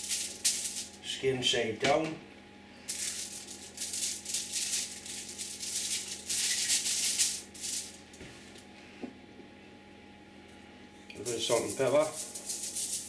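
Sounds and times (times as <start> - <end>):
foil crinkling: 2.9 - 8.0, 11.3 - 13.0.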